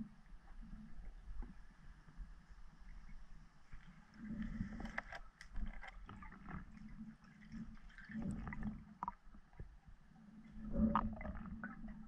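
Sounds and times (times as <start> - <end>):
underwater water gurgling: 3.7 - 12.0.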